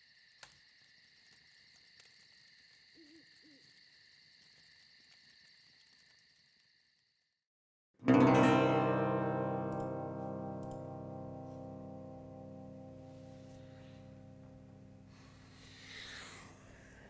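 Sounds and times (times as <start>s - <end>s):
insects trilling: 0.0s - 7.4s.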